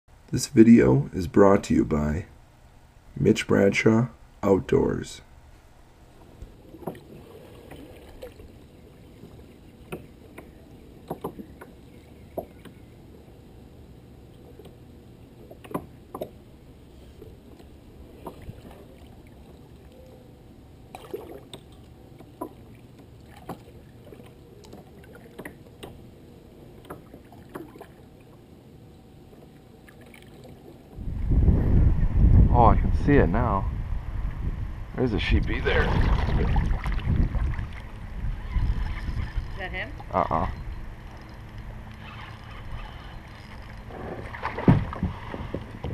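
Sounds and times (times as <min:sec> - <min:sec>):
water washing along hull: 0:06.2 - 0:31.5, 0:35.5 - 0:40.3, 0:41.0 - 0:45.9
paddle clicks and splashes: 0:06.3 - 0:13.2, 0:15.4 - 0:16.4, 0:17.2 - 0:20.2, 0:20.9 - 0:28.4, 0:29.3 - 0:31.0, 0:41.0 - 0:45.9.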